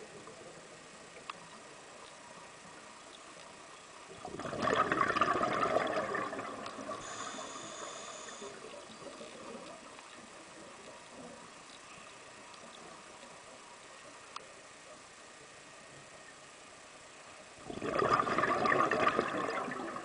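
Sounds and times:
underwater bubbles gurgling: 0:02.7 - 0:13.6, 0:17.5 - 0:20.0.

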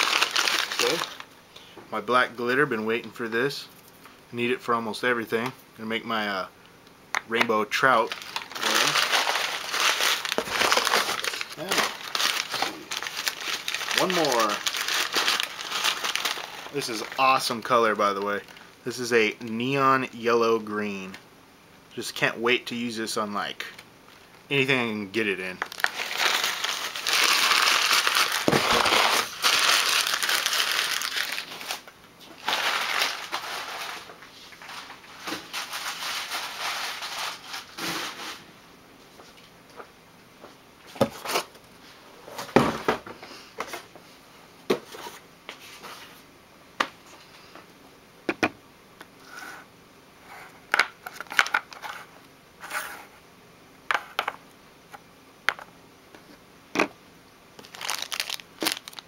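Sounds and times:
packing material crinkling: 0:00.0 - 0:01.3, 0:07.7 - 0:18.8, 0:25.5 - 0:38.4, 0:57.6 - 0:59.0.

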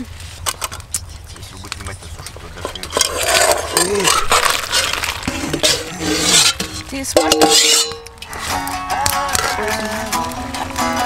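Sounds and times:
wet scraping and clinking cookware: 0:02.6 - 0:08.4.

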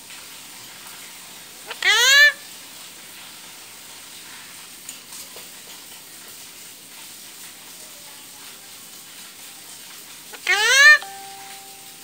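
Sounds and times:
faint background hiss: 0:11.0 - 0:12.0.

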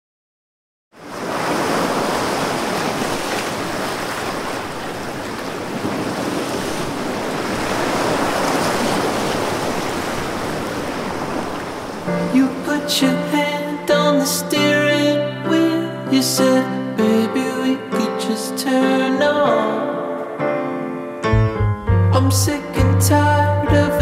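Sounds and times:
sea surf washing in: 0:01.0 - 0:13.9.

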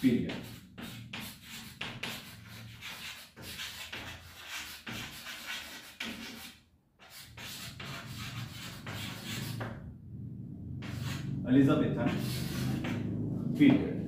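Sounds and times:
chalk scratching on chalkboard: 0:00.0 - 0:09.8, 0:10.8 - 0:14.0.

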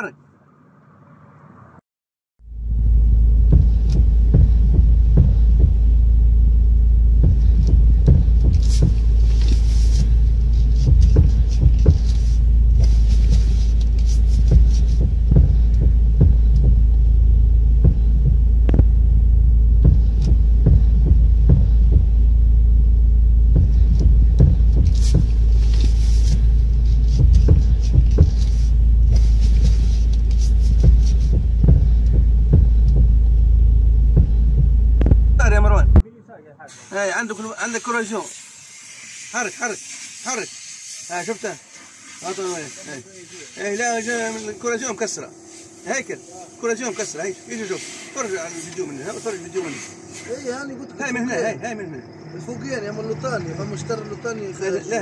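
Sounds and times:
steady low hum: 0:02.4 - 0:36.6, 0:41.6 - 0:55.0
steering joint knocking and clicking: 0:03.4 - 0:06.1, 0:07.1 - 0:22.4, 0:23.4 - 0:36.0.

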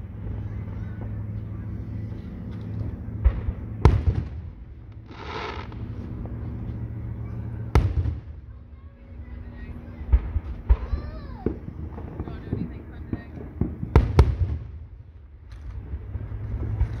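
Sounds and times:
smaller firework thuds: 0:03.2 - 0:05.9
firework shells booming: 0:03.2 - 0:06.0, 0:07.7 - 0:08.5, 0:10.0 - 0:15.2
firework hiss: 0:05.0 - 0:05.9.

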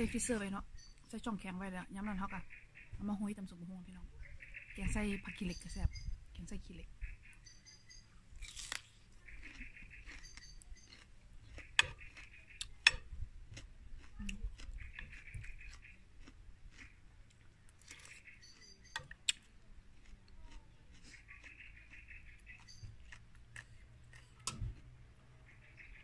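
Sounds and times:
small songbird singing trilled phrases: 0:00.5 - 0:01.4, 0:02.1 - 0:08.2, 0:09.2 - 0:11.0, 0:18.1 - 0:19.4, 0:21.3 - 0:23.1
quiet chewing: 0:08.4 - 0:26.0.

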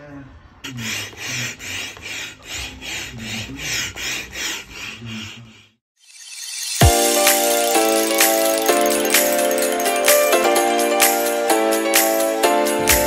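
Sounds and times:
music: 0:06.8 - 0:13.0.

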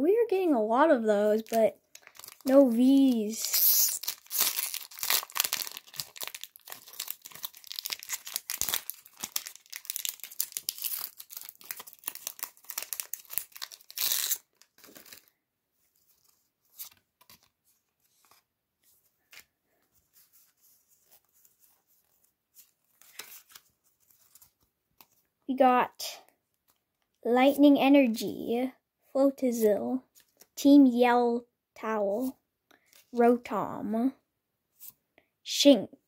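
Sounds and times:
cards clicking and rustling: 0:01.4 - 0:15.3
foil wrapper crinkling and tearing: 0:01.4 - 0:15.3.

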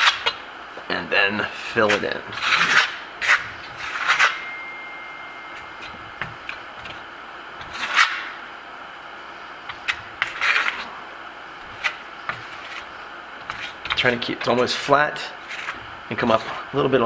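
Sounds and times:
trowel scraping plaster: 0:01.8 - 0:04.4, 0:07.6 - 0:08.2, 0:09.9 - 0:10.9, 0:11.7 - 0:16.6.

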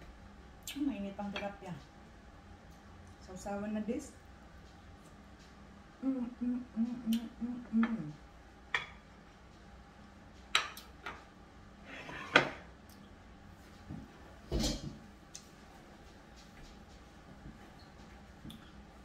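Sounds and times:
woman humming mmm: 0:06.0 - 0:08.2.

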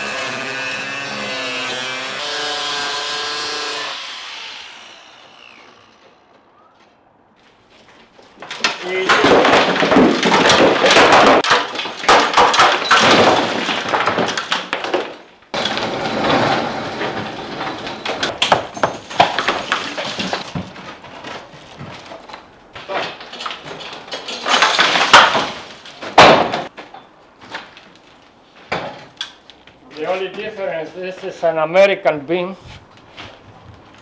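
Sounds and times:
bricks clattering down: 0:08.1 - 0:26.8.

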